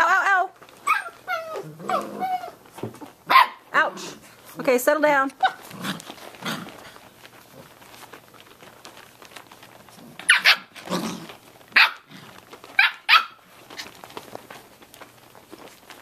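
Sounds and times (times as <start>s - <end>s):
puppies yipping: 0.8s - 2.6s, 10.2s - 10.9s, 11.7s - 14.4s.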